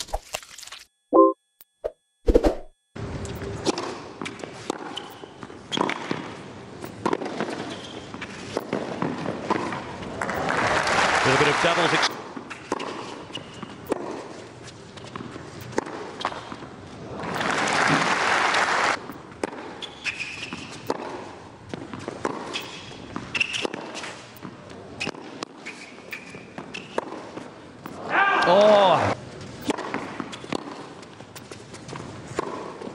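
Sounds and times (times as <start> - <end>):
racket hitting tennis ball: 3.6 - 9.9, 12.5 - 14.4, 19.4 - 24.2, 29.6 - 32.9
short high squeaks: 19.8 - 20.8.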